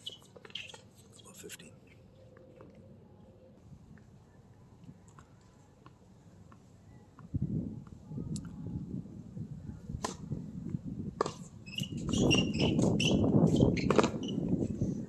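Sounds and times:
tennis ball struck by racket: 0:10.0 - 0:10.3.

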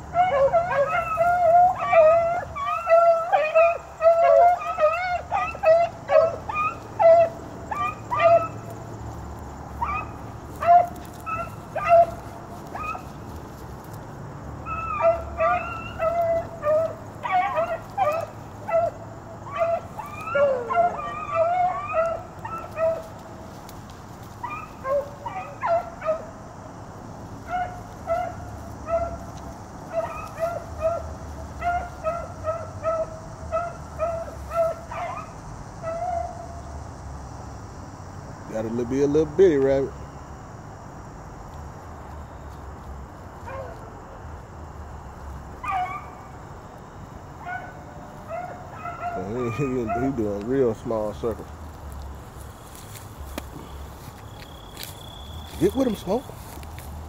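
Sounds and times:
hound barking: 0:00.0 - 0:13.6, 0:14.6 - 0:23.6, 0:24.3 - 0:26.4, 0:27.4 - 0:36.6, 0:43.4 - 0:44.1, 0:45.5 - 0:46.4, 0:47.4 - 0:51.4.

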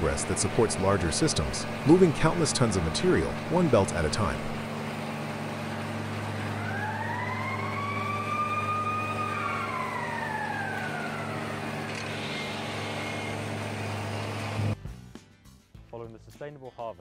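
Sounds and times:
machinery drone: 0:00.0 - 0:14.8
rising and falling tone: 0:06.2 - 0:11.9.

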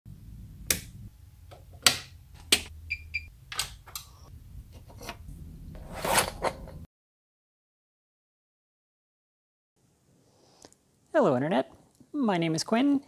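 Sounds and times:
low steady hum: 0:00.1 - 0:06.8
switches clicking: 0:00.7 - 0:00.9, 0:01.5 - 0:02.7, 0:03.5 - 0:04.2.

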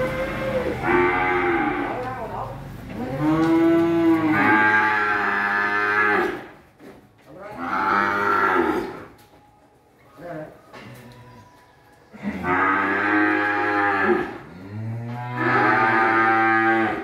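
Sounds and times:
cattle mooing: 0:00.0 - 0:02.2, 0:02.9 - 0:06.5, 0:07.4 - 0:09.1, 0:12.2 - 0:17.0.

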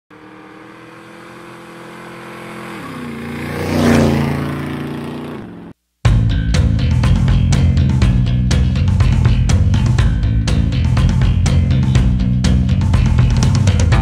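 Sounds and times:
vehicle engine passing by: 0:00.1 - 0:05.8
loud music with drums and guitar: 0:06.1 - 0:14.0.

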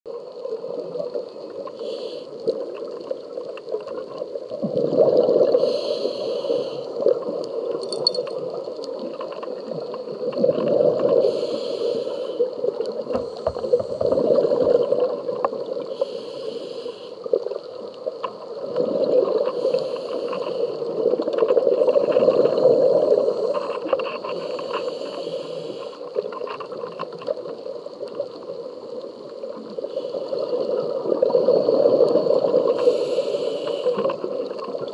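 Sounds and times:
regulator hissing inhalation: 0:01.8 - 0:02.4, 0:05.5 - 0:07.0, 0:11.2 - 0:12.6, 0:15.9 - 0:17.2, 0:19.6 - 0:20.8, 0:24.3 - 0:26.1, 0:32.6 - 0:34.2.

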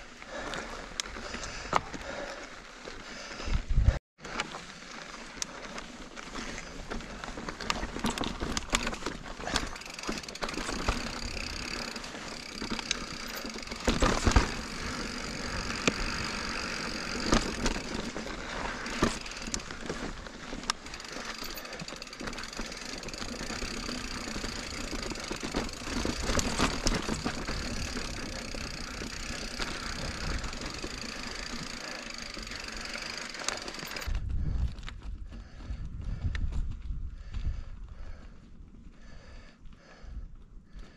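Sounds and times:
bike tyre noise on dirt: 0:00.0 - 0:40.9
bike knocks and rattles: 0:06.2 - 0:35.4.

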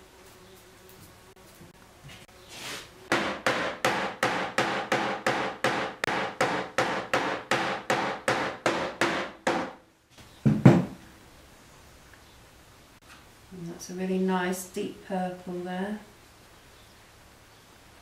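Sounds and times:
hammer pounding cloth on cardboard: 0:03.1 - 0:09.8.

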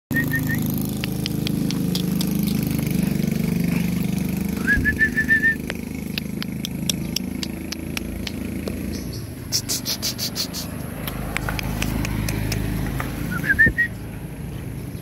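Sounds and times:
engine running: 0:00.1 - 0:15.0.

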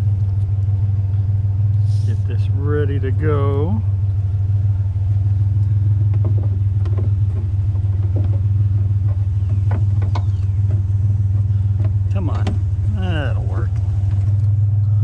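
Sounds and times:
truck engine idling: 0:00.0 - 0:15.0
light knocks and clicks: 0:06.1 - 0:12.7.

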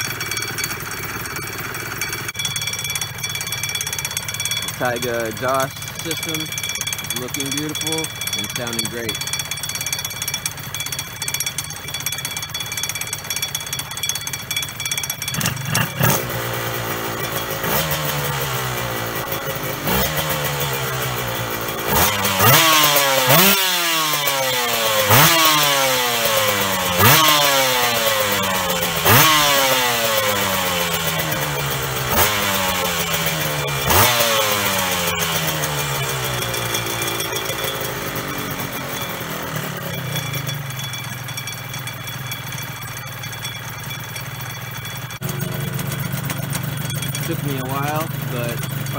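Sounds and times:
motorcycle engine revving: 0:00.0 - 0:48.9.

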